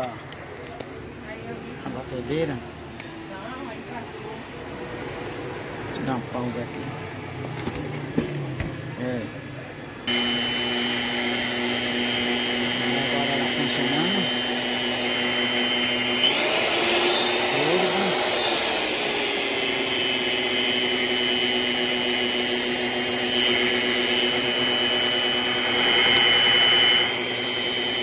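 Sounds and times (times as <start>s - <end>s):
stand mixer motor whining: 10.1s - 28.0s.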